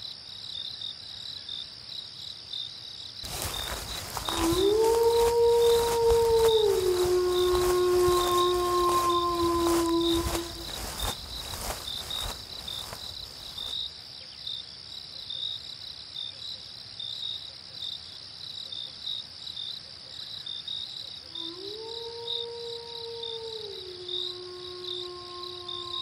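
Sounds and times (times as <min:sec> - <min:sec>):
crickets chirping: 0:00.0 - 0:26.0
wolf howling: 0:03.3 - 0:13.0, 0:21.3 - 0:26.0.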